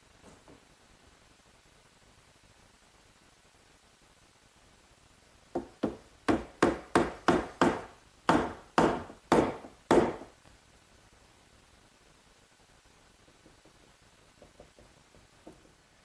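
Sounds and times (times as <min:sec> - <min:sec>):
hammer tapping wooden dowel: 0:05.6 - 0:10.3, 0:14.4 - 0:15.8.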